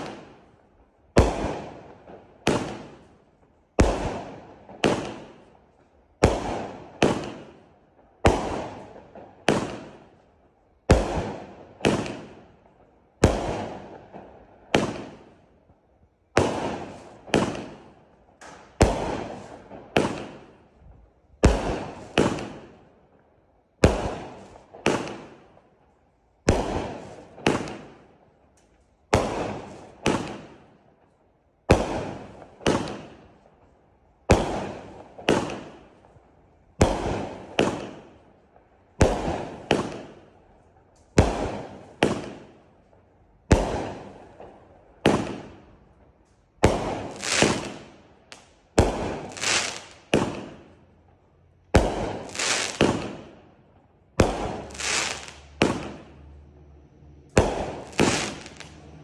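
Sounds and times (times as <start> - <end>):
fireworks cake bangs: 1.2 - 3.0, 21.4 - 22.8, 26.5 - 27.9, 36.8 - 38.2, 43.5 - 45.6, 46.6 - 50.8, 51.8 - 53.4, 54.2 - 56.1, 57.4 - 58.8.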